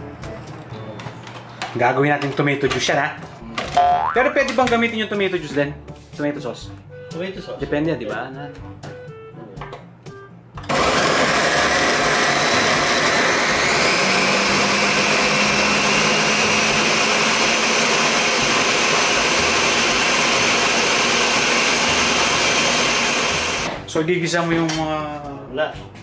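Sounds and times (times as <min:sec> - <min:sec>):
blender chopping food: 0:10.6 - 0:23.8
blender motor whirring: 0:10.6 - 0:23.8.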